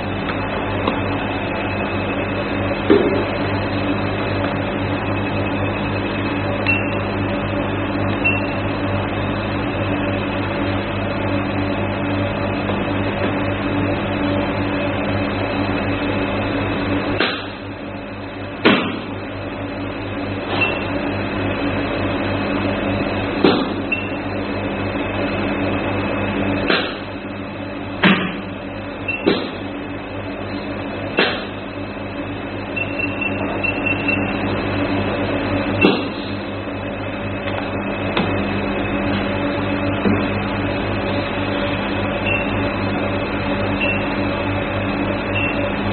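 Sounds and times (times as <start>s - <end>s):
machine humming: 0.0s - 45.9s.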